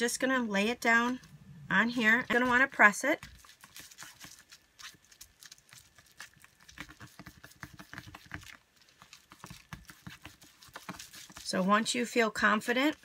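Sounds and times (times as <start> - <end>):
card rubbing on bubble wrap: 3.2 - 11.8.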